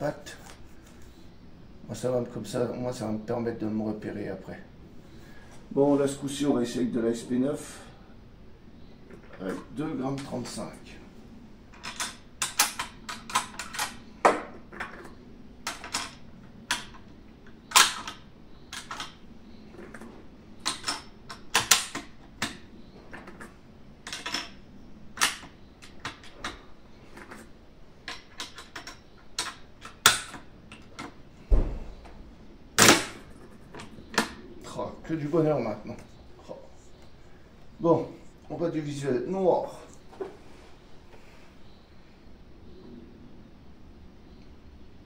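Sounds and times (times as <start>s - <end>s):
deep thud: 31.5s - 32.0s.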